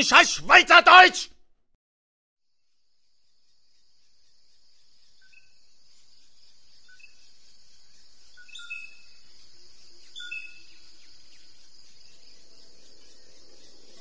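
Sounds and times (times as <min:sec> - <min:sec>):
insect drone: 0:02.5 - 0:14.0
bird chirps: 0:03.6 - 0:14.0.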